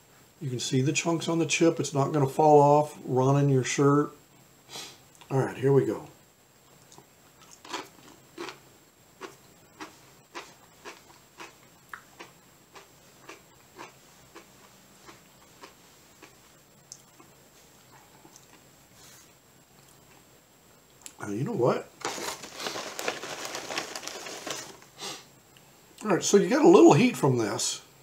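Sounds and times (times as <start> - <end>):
person crunching tortilla chip: 7.4 - 8.6, 9.2 - 16.4, 22.0 - 24.9.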